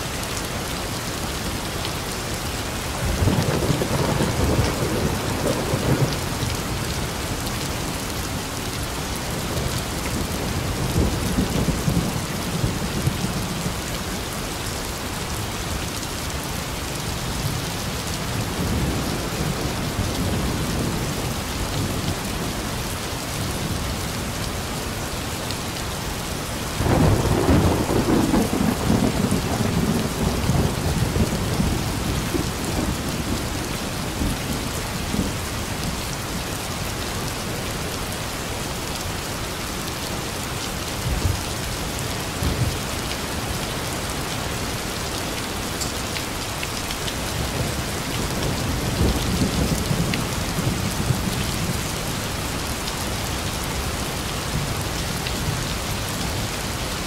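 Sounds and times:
heavy rain: 0.0 - 57.0
rolling thunder: 26.8 - 33.5.

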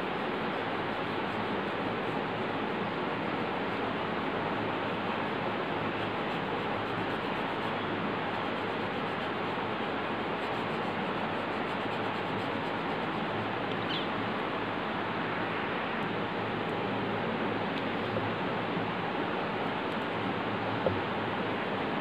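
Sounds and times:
steady background hiss: 0.0 - 22.0
faint chirp: 13.8 - 14.1.

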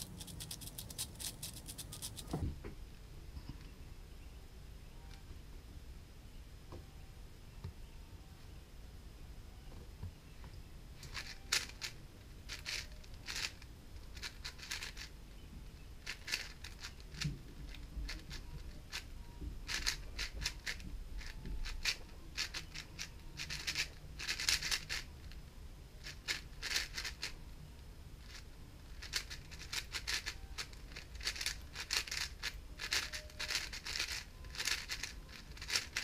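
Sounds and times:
plastic puzzle cube clicking: 0.0 - 2.4, 11.0 - 11.9, 12.5 - 13.6, 14.2 - 15.1, 16.1 - 19.0, 19.7 - 25.0, 26.0 - 27.3, 29.0 - 36.0.

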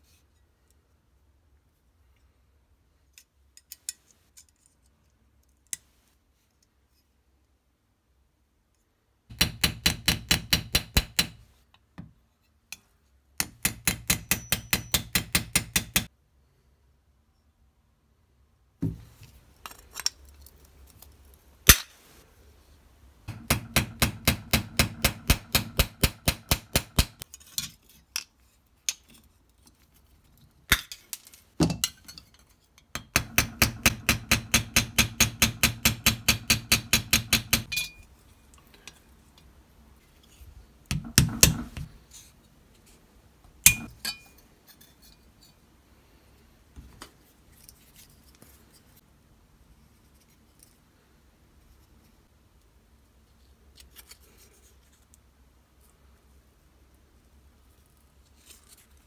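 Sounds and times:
small hammer tapping steel: 13.4 - 16.1, 33.0 - 38.0, 43.6 - 44.4.

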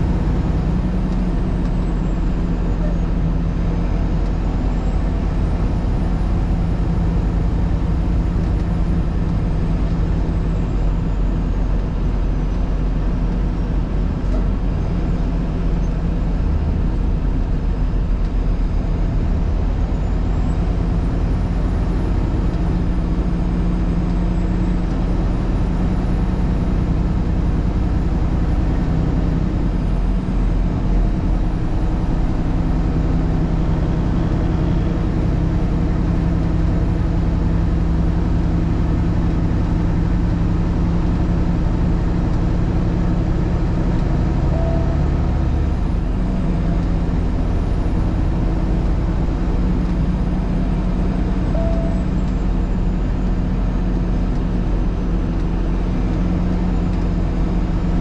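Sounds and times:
vehicle engine and tyre road noise: 0.0 - 58.0.

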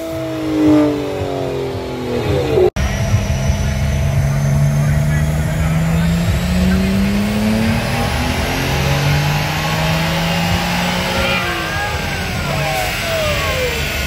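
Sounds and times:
car engines idling: 0.0 - 14.0
engine revving down: 0.0 - 14.0.

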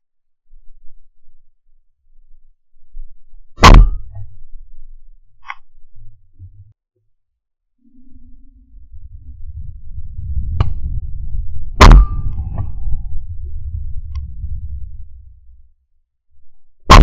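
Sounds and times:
low rumble: 0.5 - 6.8, 7.8 - 17.0
shotgun firing: 3.6 - 4.0, 11.8 - 12.3.

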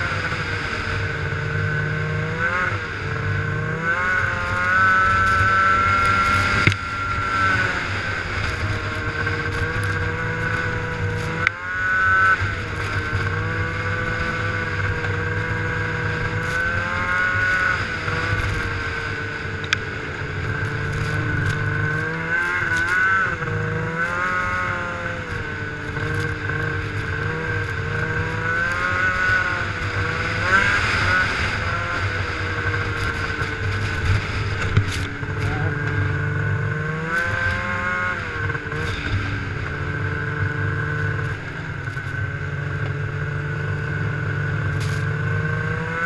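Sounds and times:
snowmobile engine running: 0.0 - 46.0.

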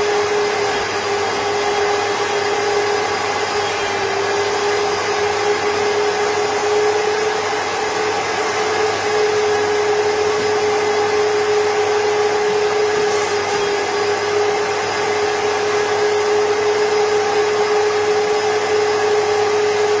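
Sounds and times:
vacuum motor whine: 0.0 - 20.0.

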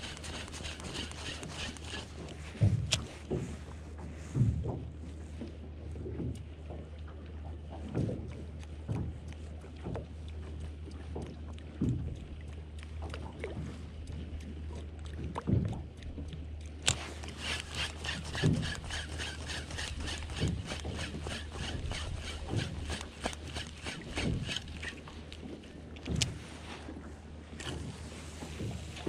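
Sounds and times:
fast rattling clicks: 0.0 - 2.2, 16.8 - 24.9
low steady hum: 0.0 - 29.0
water slapping boat hull: 0.0 - 29.0.

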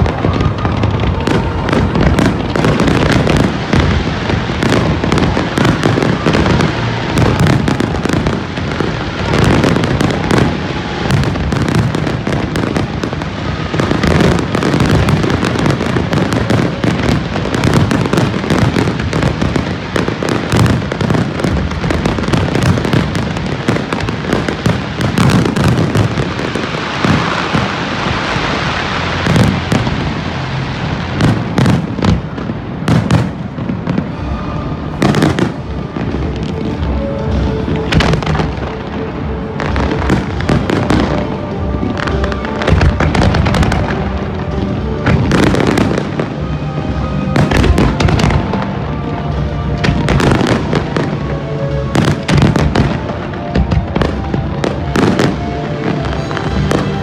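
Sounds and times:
fireworks bursting with loud bangs: 0.0 - 57.0
fireworks crackling hiss: 0.0 - 57.0.

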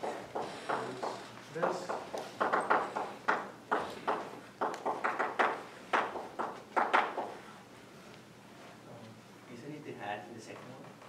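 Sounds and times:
chalk tapping and scratching: 0.0 - 7.4.

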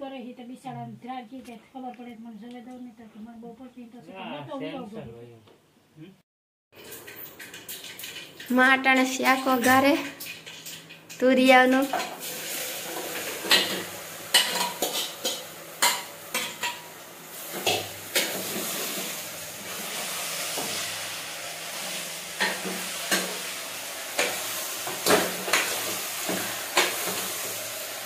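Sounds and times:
frying sizzle: 6.8 - 28.0.

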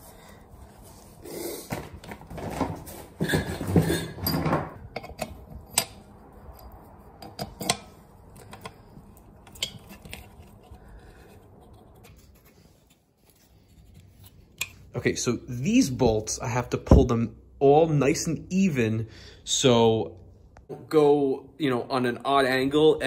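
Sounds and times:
metal clinks and scrapes: 3.2 - 10.8.

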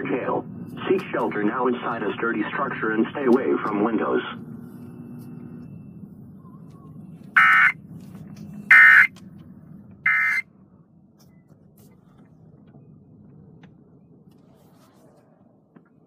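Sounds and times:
harsh electronic data bursts: 10.1 - 10.4.

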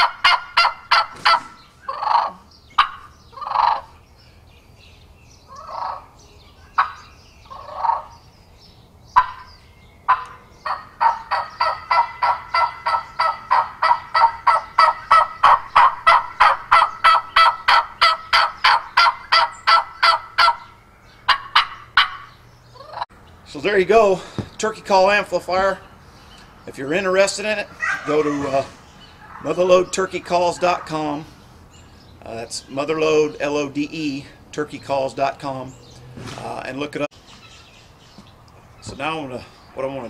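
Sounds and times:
turkey call notes: 0.0 - 4.0, 5.4 - 8.2, 9.1 - 24.5, 25.3 - 35.0.

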